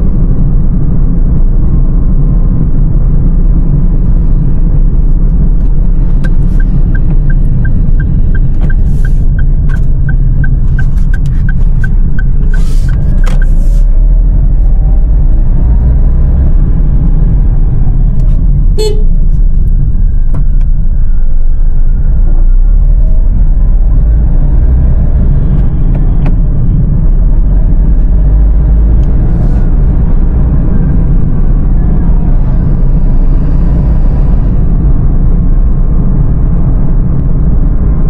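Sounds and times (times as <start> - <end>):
car engine and road noise: 0.0 - 38.0
short beep: 18.8 - 19.2.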